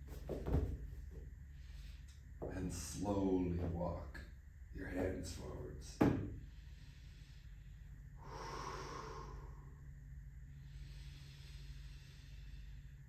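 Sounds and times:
faint low hum: 0.0 - 13.0
person breathing slowly: 6.4 - 13.0.

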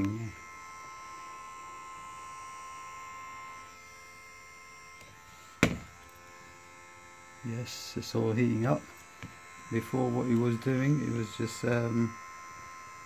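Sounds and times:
hot air gun fan whirring: 0.0 - 13.0
sharp knock: 5.6 - 5.9.

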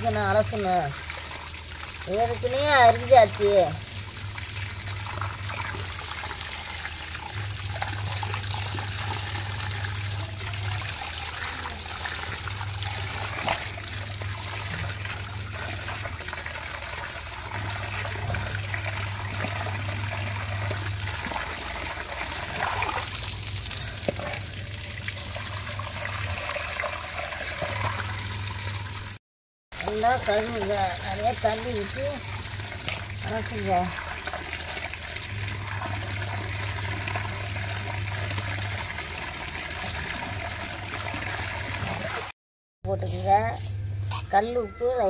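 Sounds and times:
water splashing into a bowl: 0.0 - 29.2.

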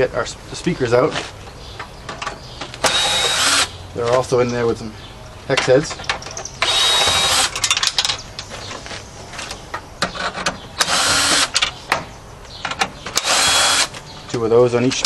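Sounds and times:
cordless drill motor whine: 2.8 - 3.7, 6.6 - 7.5, 10.8 - 11.5, 13.2 - 13.9.

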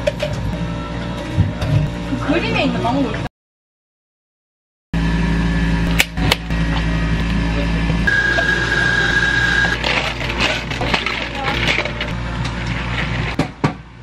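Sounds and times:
low machine hum: 5.0 - 14.0
steady high tone: 6.9 - 9.9
ice cubes clattering into cups: 9.6 - 12.2.

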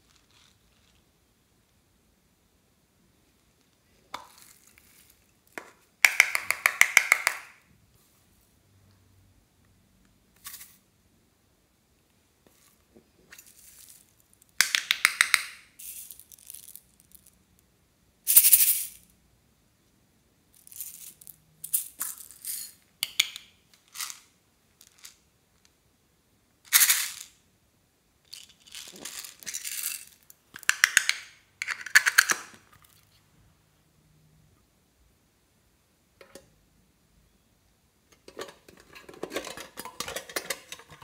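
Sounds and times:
plastic toys rattling and clicking: 28.3 - 33.0, 38.2 - 41.0.

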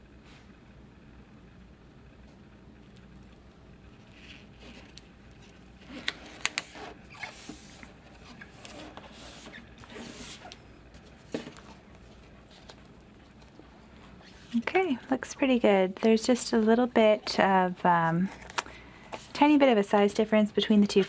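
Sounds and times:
photo paper crinkling: 4.0 - 14.6, 18.1 - 19.5
palms sliding on paper: 4.2 - 12.8.

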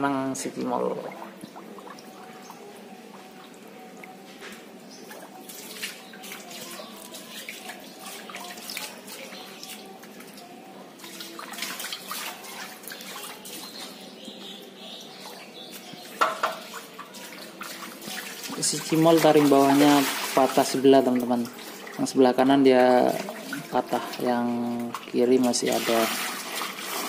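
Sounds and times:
water running from hose: 4.9 - 27.0
otter splashing in water: 5.0 - 14.1, 15.2 - 22.0, 23.0 - 27.0.

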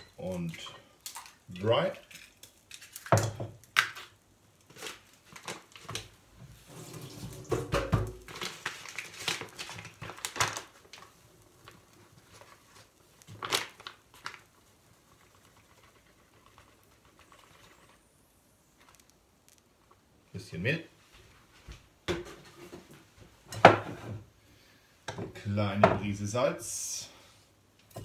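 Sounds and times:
kitchen items knocking: 7.4 - 8.3
packaging rustling: 8.2 - 14.7.

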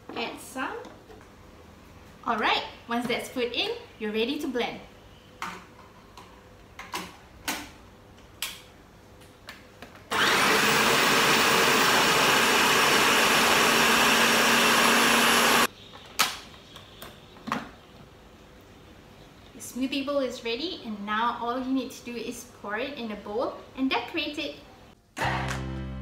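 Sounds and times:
food processor blending: 10.1 - 15.7.

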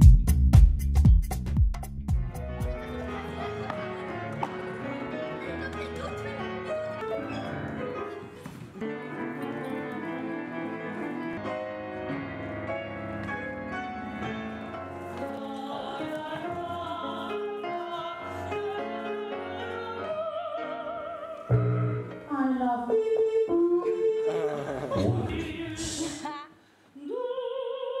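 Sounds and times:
grand piano music: 2.2 - 22.4.

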